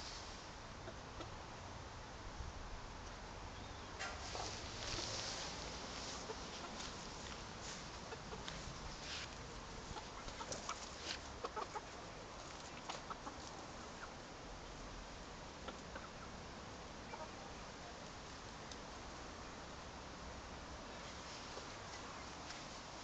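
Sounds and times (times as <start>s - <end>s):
chickens clucking softly: 0.8s - 1.4s, 4.0s - 14.3s, 15.5s - 18.1s, 20.9s - 23.0s.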